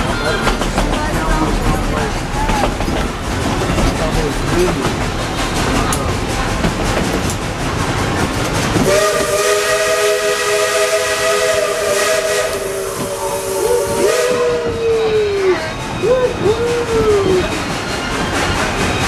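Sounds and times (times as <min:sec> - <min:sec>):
rumble of moving train cars: 0:00.0 - 0:19.0
steam locomotive whistle blast: 0:08.8 - 0:16.1.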